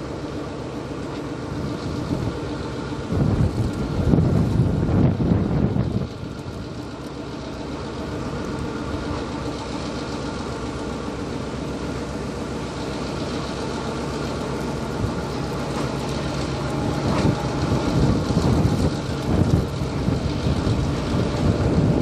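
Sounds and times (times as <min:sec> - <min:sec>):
locomotive diesel engine running: 0:00.0 - 0:22.0.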